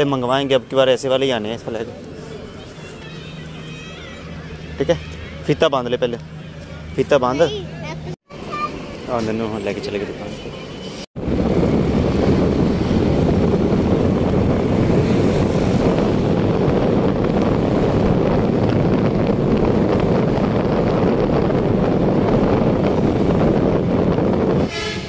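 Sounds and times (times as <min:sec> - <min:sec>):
vehicle running noise: 0:00.0 - 0:25.0
wind rumble on microphone: 0:11.2 - 0:25.0.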